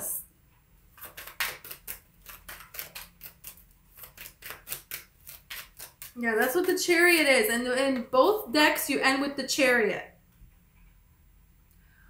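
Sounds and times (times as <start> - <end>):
cards being shuffled: 1.0 - 6.8.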